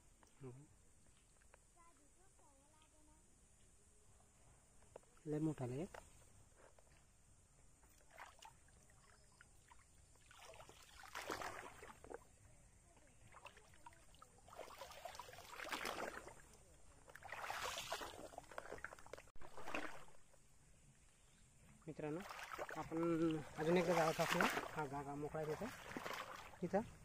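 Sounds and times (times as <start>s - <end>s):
river water splashing: 7.8s - 12.5s, 13.1s - 20.4s, 22.0s - 27.0s.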